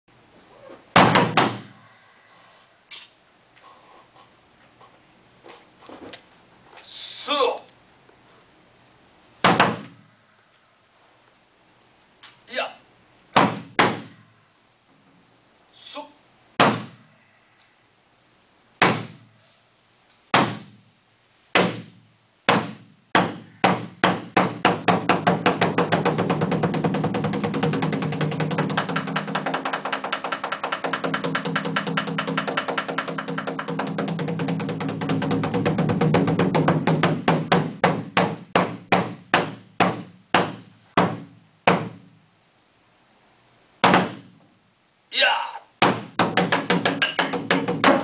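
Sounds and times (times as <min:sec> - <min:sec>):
taiko drum hits: 0:24.1 - 0:41.9.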